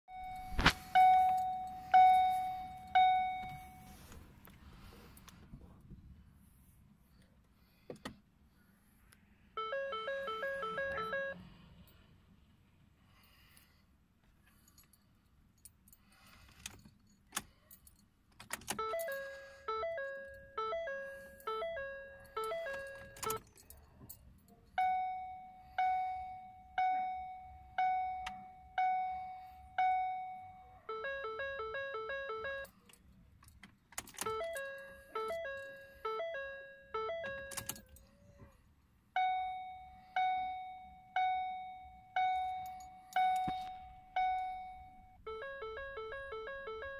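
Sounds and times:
car warning chimes: 0:00.1 - 0:04.2, 0:09.4 - 0:12.0, 0:17.0 - 0:46.9.

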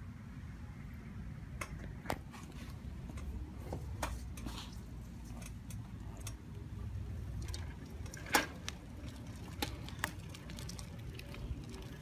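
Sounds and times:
tricycle rolling rumble: 0:02.4 - 0:12.0.

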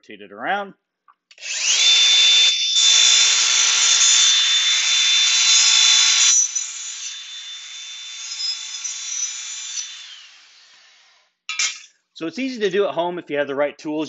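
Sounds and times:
grinder spinning freely: 0:01.3 - 0:11.8
angle grinder grinding metal: 0:01.3 - 0:11.9.

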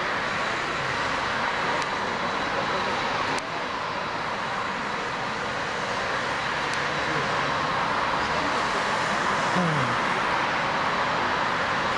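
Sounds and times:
jet engines at takeoff: 0:00.0 - 0:11.9.

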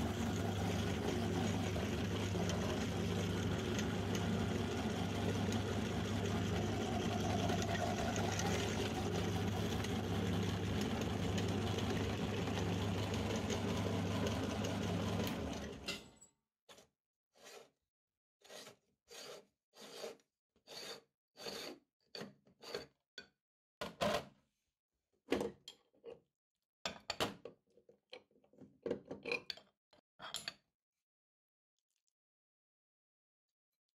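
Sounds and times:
meat grinder humming: 0:00.0 - 0:15.9.

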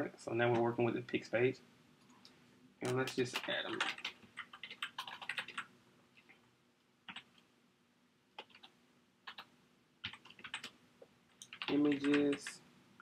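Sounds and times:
faint typing on keyboard: 0:02.0 - 0:07.5, 0:08.3 - 0:12.6.

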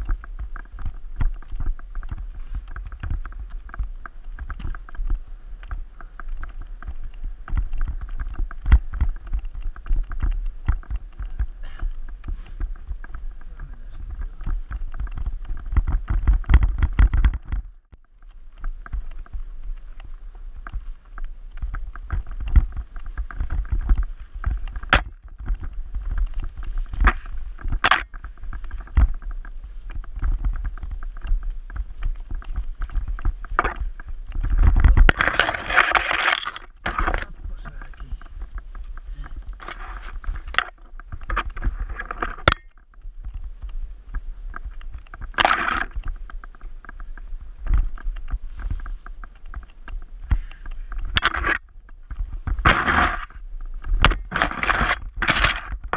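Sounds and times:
sharp cracks: 0:00.0 - 0:43.0
mountain bike rattling over trail: 0:00.0 - 0:55.9.

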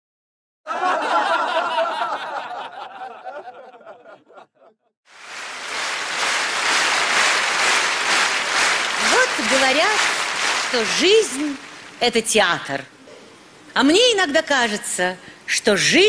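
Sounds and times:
laughter: 0:00.7 - 0:04.9
audience applause: 0:05.1 - 0:12.2.

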